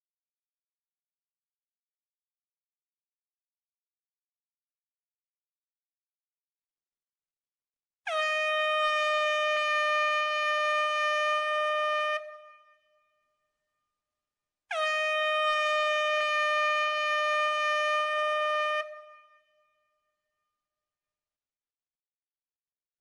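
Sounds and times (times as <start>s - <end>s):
air horn blasts: 8.1s - 12.7s, 14.7s - 19.5s.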